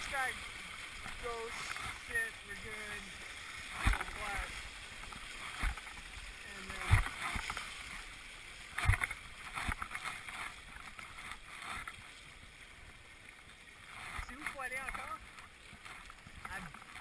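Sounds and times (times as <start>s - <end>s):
whitewater rushing and splashing: 0.0s - 17.0s
splashing thumps: 1.0s - 8.0s, 8.7s - 12.0s.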